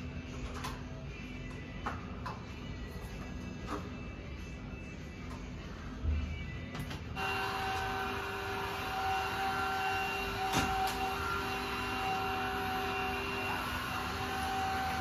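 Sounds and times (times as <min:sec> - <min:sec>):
vacuum cleaner motor whine: 0:07.2 - 0:15.0.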